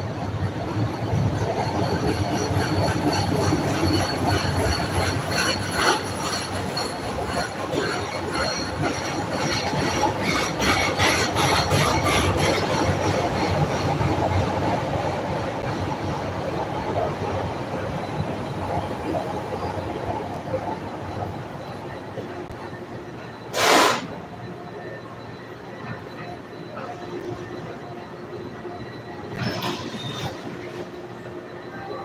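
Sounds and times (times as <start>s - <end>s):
wheels clacking on rails: 0.0s - 25.0s
high-pitched wheel squeal: 29.3s - 30.6s.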